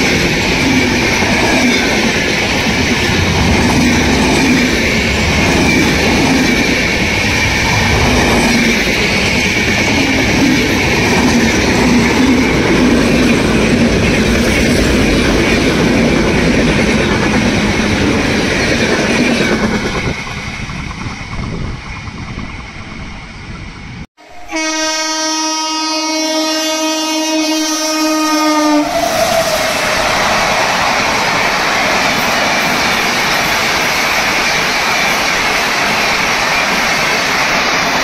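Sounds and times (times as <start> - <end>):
train running past: 0.0 - 38.0
locomotive horn blast: 24.2 - 30.1.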